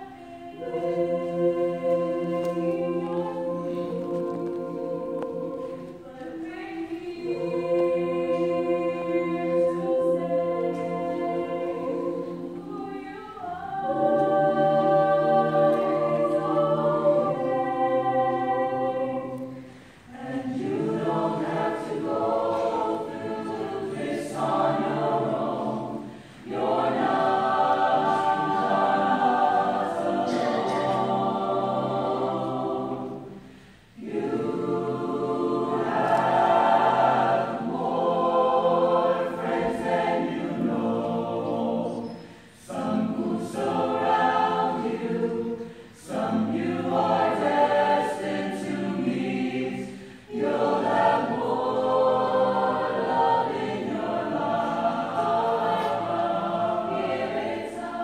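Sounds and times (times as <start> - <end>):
choir singing in harmony: 0.0 - 58.0.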